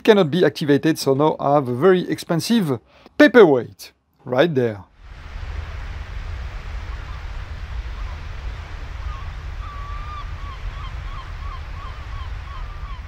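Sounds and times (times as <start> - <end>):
wind: 3.4 - 13.0
water noise: 4.9 - 13.0
birds calling: 6.9 - 13.0.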